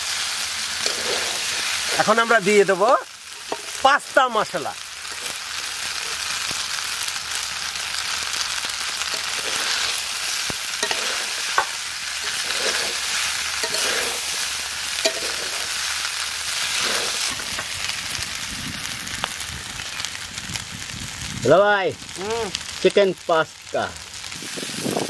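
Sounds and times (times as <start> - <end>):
food sizzling in a wok: 0.0 - 25.0
spatula stirring and scraping: 0.7 - 2.2, 3.3 - 3.9, 9.0 - 17.7.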